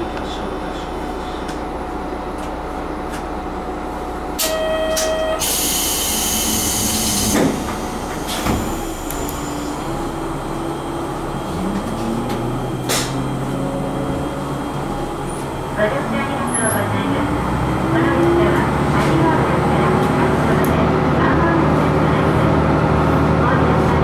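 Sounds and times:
short pitched tone: 0:04.4 - 0:05.5
air hissing: 0:05.4 - 0:09.8
diesel engine accelerating: 0:05.4 - 0:24.0.

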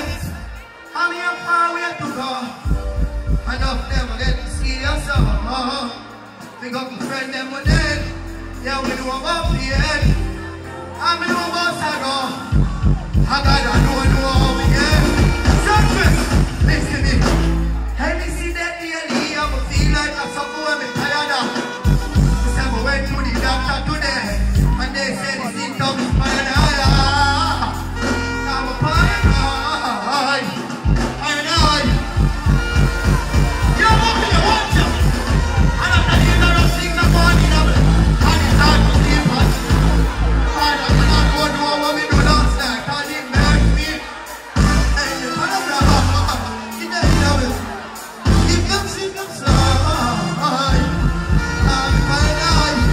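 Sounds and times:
dancehall music over pa: 0:00.0 - 0:52.9
man singing into a microphone: 0:48.3 - 0:52.9.

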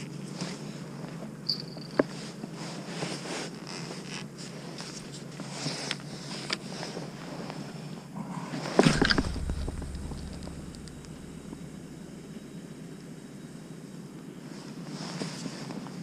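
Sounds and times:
faint steady hiss: 0:04.3 - 0:16.0.

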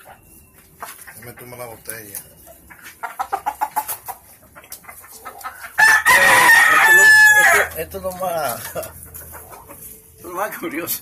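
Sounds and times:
rooster clucking: 0:00.0 - 0:10.2
rooster crowing: 0:05.8 - 0:07.8.

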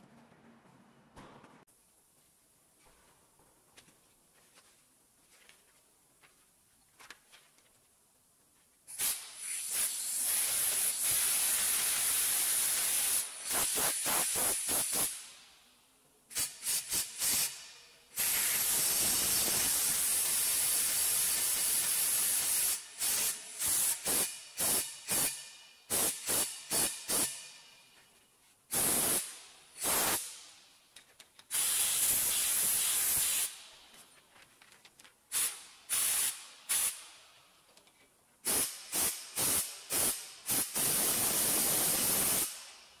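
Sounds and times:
pressurised gas spraying: 0:08.9 - 0:15.3, 0:16.3 - 0:27.5, 0:28.7 - 0:30.5, 0:31.5 - 0:33.7, 0:35.3 - 0:37.1, 0:38.4 - 0:42.8.

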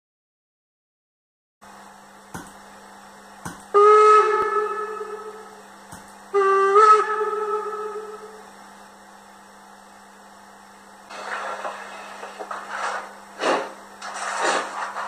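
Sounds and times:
steady low hum: 0:01.6 - 0:15.0
model train steam whistle: 0:03.8 - 0:05.7, 0:06.3 - 0:08.6.

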